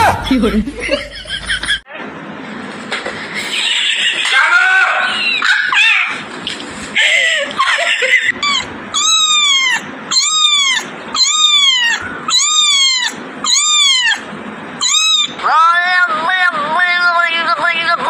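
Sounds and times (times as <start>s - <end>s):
kitten mewing: 8.3s - 15.5s.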